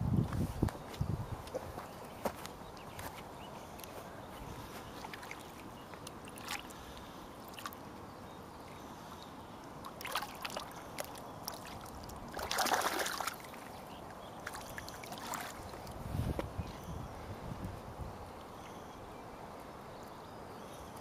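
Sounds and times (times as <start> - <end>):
water splashing: 5.0 - 7.8, 9.8 - 13.8, 14.4 - 16.0.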